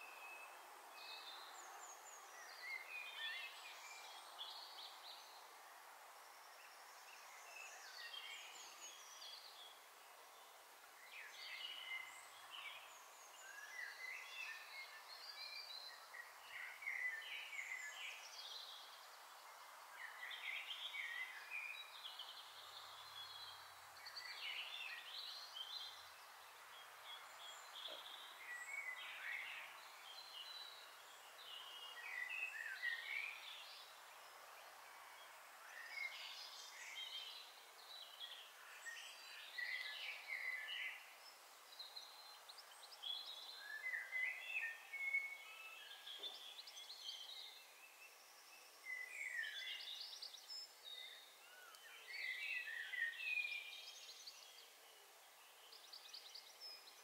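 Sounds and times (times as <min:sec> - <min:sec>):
faint steady hiss: 0:00.0 - 0:57.0
bird chirping: 0:11.0 - 0:57.0.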